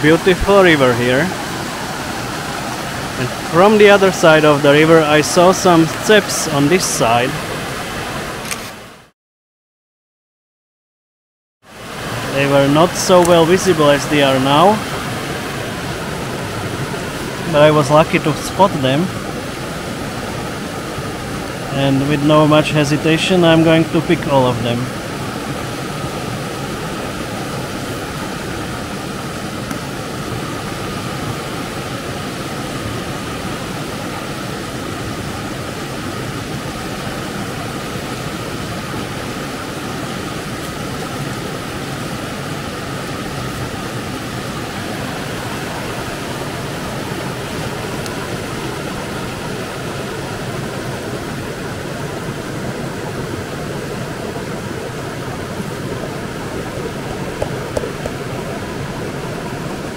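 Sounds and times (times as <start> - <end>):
river rushing over stones: 0.0 - 9.0, 11.7 - 59.9.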